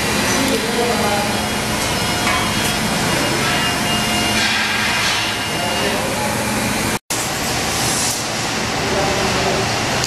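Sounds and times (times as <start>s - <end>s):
machinery din: 0.0s - 7.3s.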